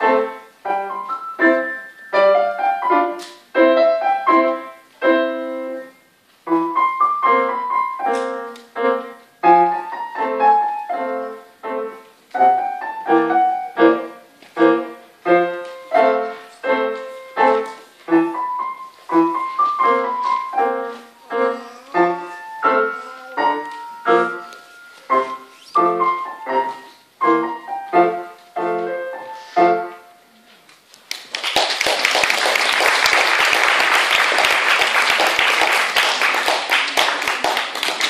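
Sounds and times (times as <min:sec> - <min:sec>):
grand piano chords: 0:00.0 - 0:30.4
audience applauding: 0:31.0 - 0:38.0.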